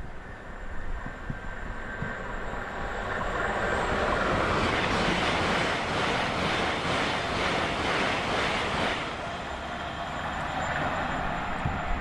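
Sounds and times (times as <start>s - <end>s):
electric train rumbling on rails: 0.0s - 12.0s
thin steady whine: 9.0s - 12.0s.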